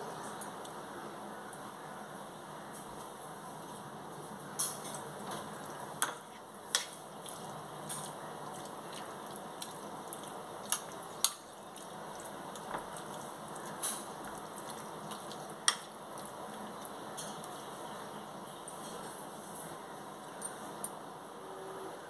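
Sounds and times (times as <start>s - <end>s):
chicken squishing in marinade: 4.9s - 18.0s.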